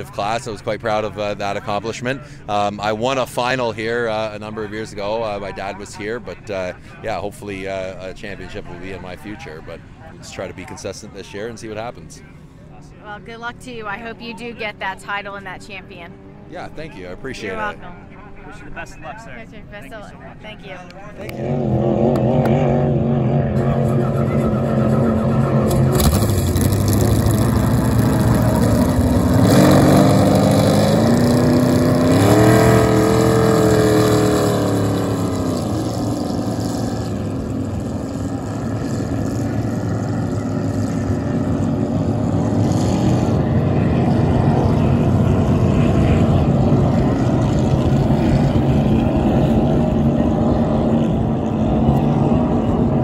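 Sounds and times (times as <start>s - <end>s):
race boat engine revving: 21.2s - 53.0s.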